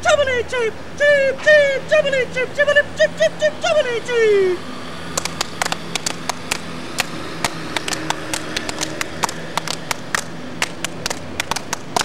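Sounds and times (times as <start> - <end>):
small audience clapping: 5.2 - 12.0.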